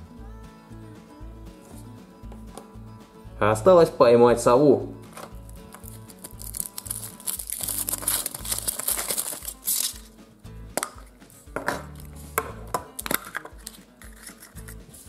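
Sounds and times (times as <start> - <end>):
plastic capsule snapping open: 5.1 - 10.1, 10.8 - 14.8
chocolate shell cracking: 5.2 - 10.1, 10.8 - 14.8
foil wrapper crinkling: 5.2 - 10.1.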